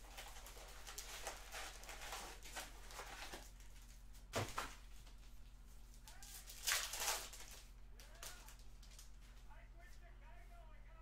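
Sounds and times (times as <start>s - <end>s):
foil packs rustling and crinkling: 0.0s - 5.2s, 6.1s - 9.3s.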